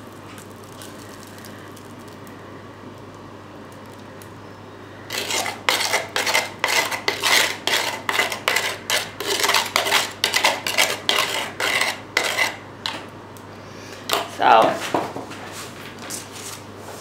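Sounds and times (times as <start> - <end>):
metal spoon scraping wet cement: 5.1 - 13.1.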